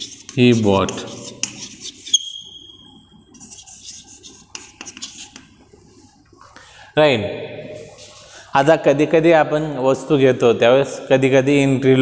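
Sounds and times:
chalk scratching on blackboard: 0.0s - 2.5s, 3.3s - 5.6s.

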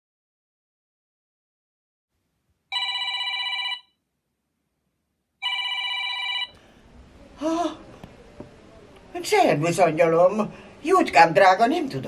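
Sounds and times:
telephone ringing: 2.7s - 4.0s, 5.4s - 6.6s.

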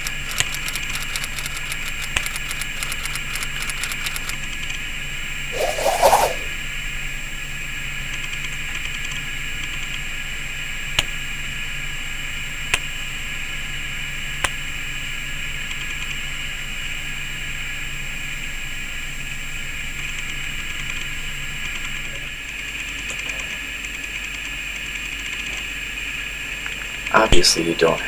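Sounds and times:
low hum: 5.6s - 6.6s.

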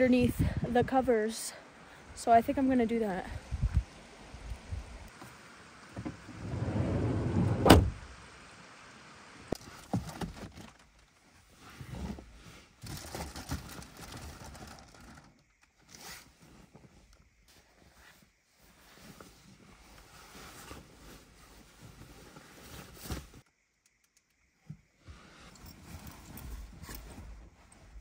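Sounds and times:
van door rumbling: 6.0s - 8.1s
van door slamming: 6.4s - 8.0s.

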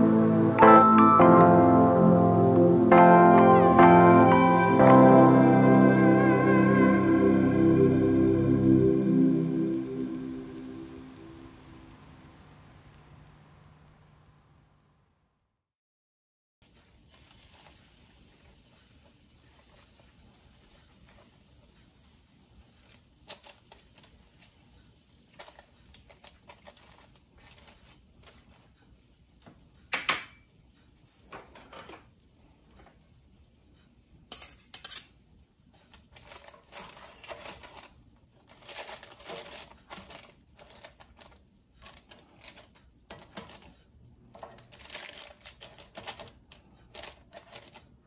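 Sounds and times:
crisp paper crackling: 25.3s - 28.7s, 36.0s - 48.0s.

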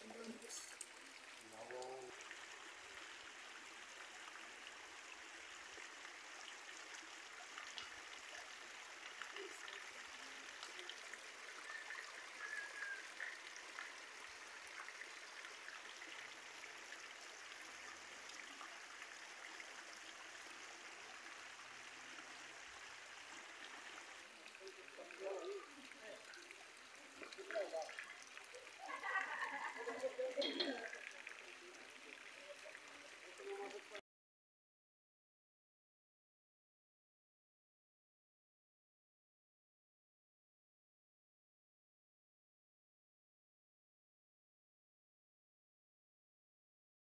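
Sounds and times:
rainwater runoff flowing: 0.0s - 34.0s.

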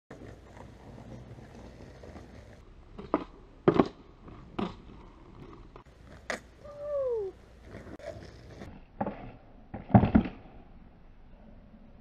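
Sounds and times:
skateboard clacks: 0.1s - 6.5s
skateboard wheels rolling on concrete: 0.1s - 11.8s.

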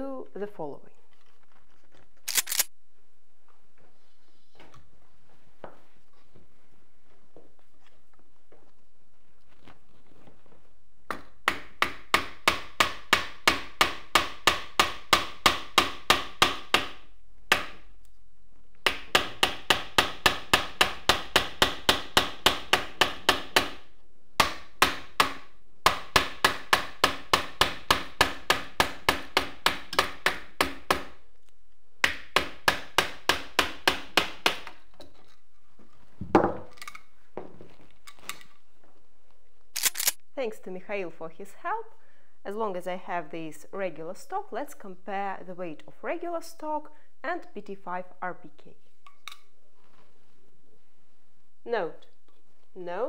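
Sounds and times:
hammer striking wood: 11.1s - 17.8s, 18.8s - 23.8s, 24.4s - 31.2s, 32.0s - 34.8s.

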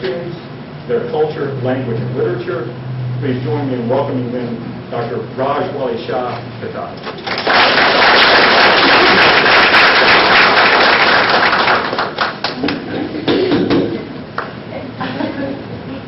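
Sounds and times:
audience applauding: 7.2s - 12.8s.

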